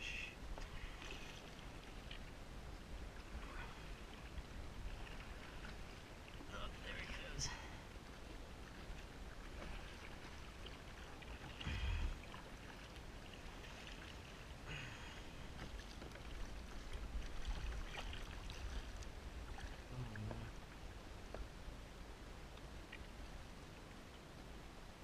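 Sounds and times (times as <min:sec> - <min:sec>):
water sloshing against kayak: 0:00.1 - 0:24.6
low rumble: 0:11.6 - 0:12.3.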